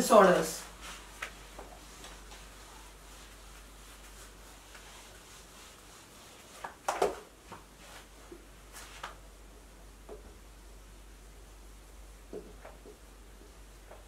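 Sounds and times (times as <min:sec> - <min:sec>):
low room hiss: 0:00.0 - 0:14.0
objects clacking at a whiteboard: 0:06.6 - 0:07.3.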